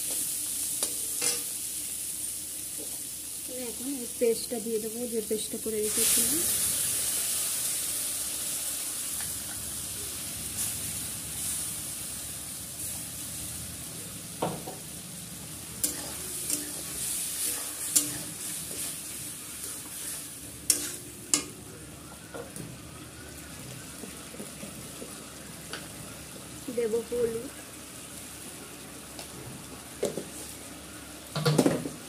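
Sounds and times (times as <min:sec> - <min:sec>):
paste sizzling in hot oil: 0:00.0 - 0:22.4
metal spatula scraping pan: 0:19.7 - 0:21.1.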